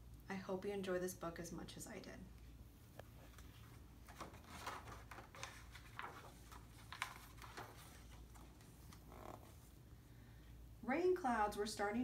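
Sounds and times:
book pages turning: 3.1 - 9.8.

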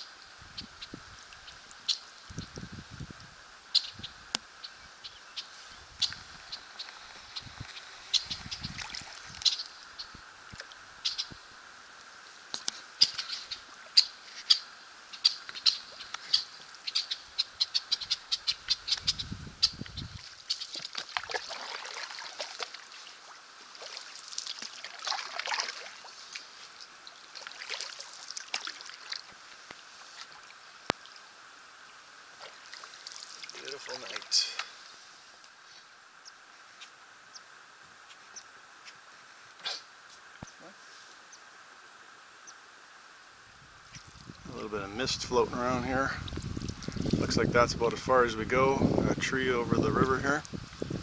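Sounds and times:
blackbirds chip notes: 3.7 - 11.5, 12.5 - 21.0
blackbirds falling calls: 13.0 - 21.8.

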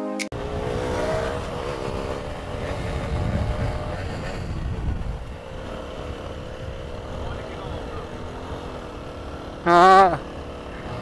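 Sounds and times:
motorcycle engine running: 0.3 - 11.0
wind rumble on microphone: 0.4 - 8.4.

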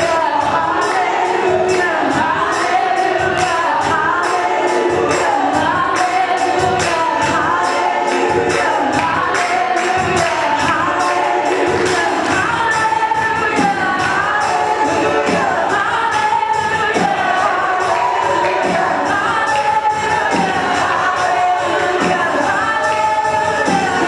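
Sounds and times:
crisp percussion beat: 0.0 - 24.0
singers over instrumental backing: 0.0 - 24.0.

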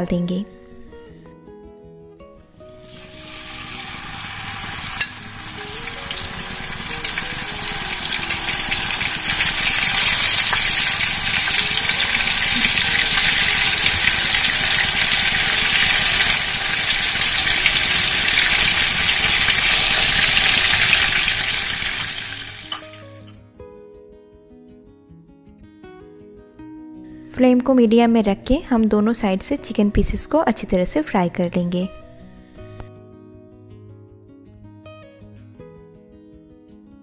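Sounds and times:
chicken sizzling in a frying pan: 2.8 - 23.3.

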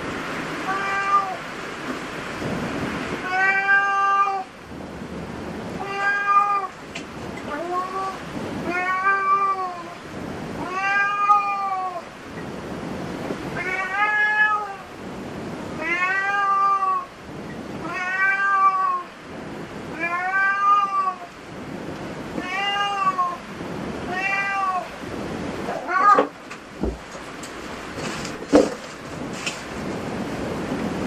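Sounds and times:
cat meowing: 0.6 - 1.4, 3.2 - 4.5, 5.8 - 6.8, 7.4 - 10.0, 10.6 - 12.1, 13.6 - 14.9, 15.8 - 17.1, 17.8 - 19.2, 19.9 - 21.4, 22.3 - 23.5, 24.1 - 25.0, 25.6 - 26.4.

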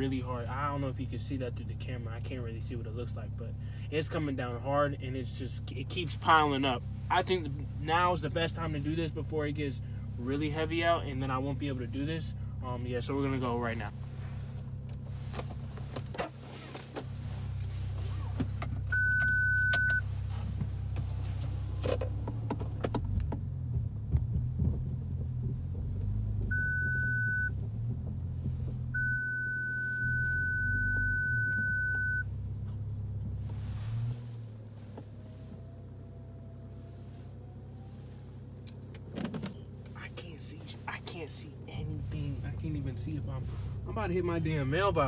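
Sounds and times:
car engine running at low revs: 0.0 - 45.0
parking sensor beeping: 18.9 - 20.1, 26.5 - 27.6, 28.9 - 32.3
knocks and clunks in cabin: 21.8 - 26.6.

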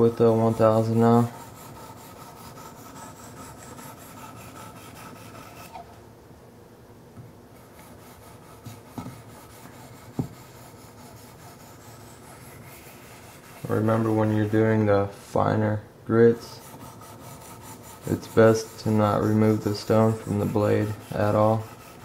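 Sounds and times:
sharpening stone rasping on steel: 1.2 - 5.8, 16.5 - 22.0.

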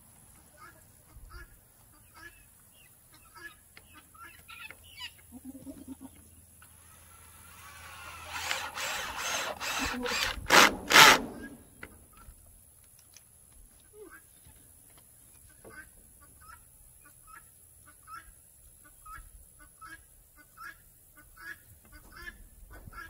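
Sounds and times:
chickens clucking: 0.6 - 7.2.

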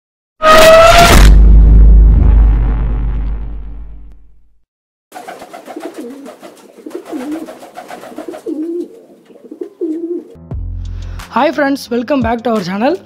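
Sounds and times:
deep low boom: 1.0 - 4.6
pigeons cooing: 5.2 - 10.4.

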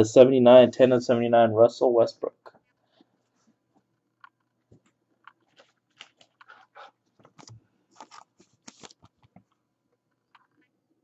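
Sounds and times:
plastic rustling and crinkling: 4.7 - 9.6.

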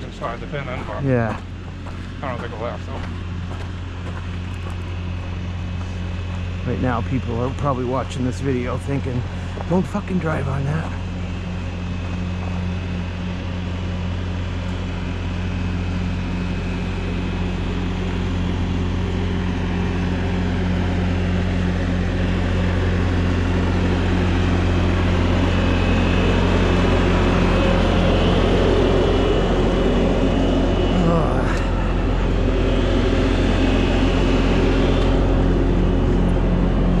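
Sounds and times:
loader diesel engine running: 0.0 - 37.0.

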